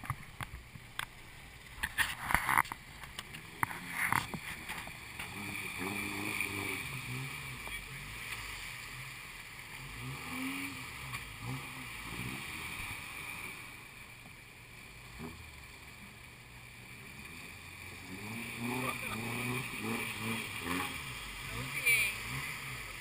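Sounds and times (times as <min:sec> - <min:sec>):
water churning: 0:00.0 - 0:23.0
people's voices: 0:18.5 - 0:23.0.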